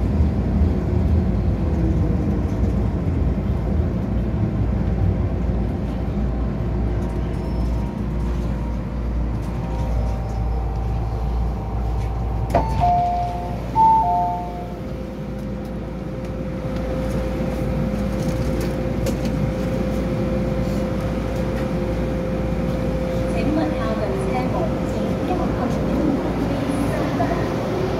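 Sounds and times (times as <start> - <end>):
steady train hum: 0.0 - 27.9
train rumbling to a stop: 0.0 - 27.9
two-tone door chime: 12.6 - 14.8.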